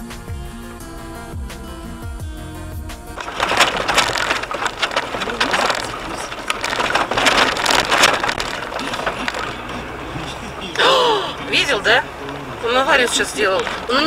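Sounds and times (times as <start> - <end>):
tyres rushing on gravel: 3.0 - 14.0
car body rattling: 3.1 - 10.8, 11.5 - 14.0.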